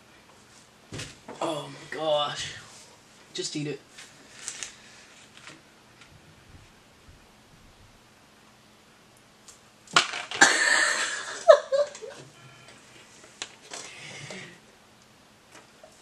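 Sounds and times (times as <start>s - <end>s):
person laughing: 10.4s - 12.2s.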